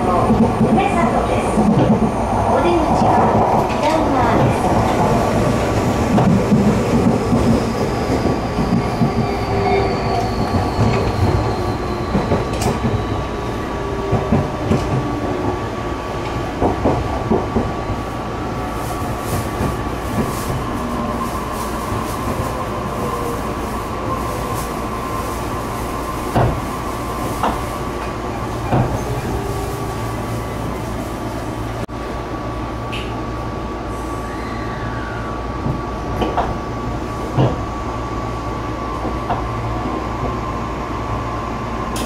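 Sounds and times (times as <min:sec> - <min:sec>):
train wheels rumbling: 0:00.0 - 0:31.9.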